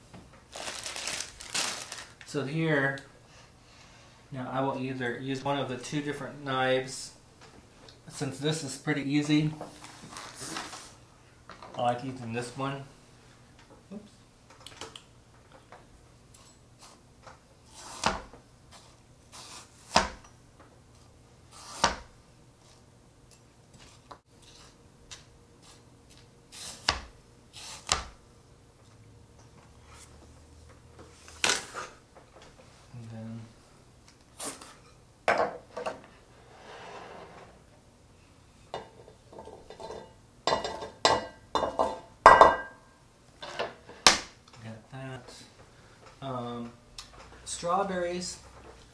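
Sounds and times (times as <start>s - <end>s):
knife chopping fruit: 26.7s - 27.1s
dishes and utensils clinking: 38.6s - 42.8s.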